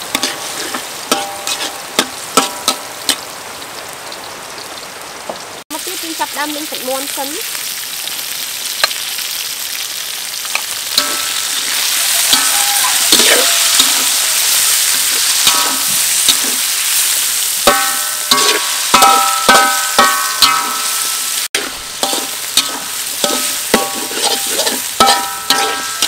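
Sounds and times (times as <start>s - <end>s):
metal spatula scraping and clanking: 0.0s - 3.2s, 10.6s - 17.0s, 17.6s - 26.0s
meat sizzling in hot oil: 0.0s - 26.0s.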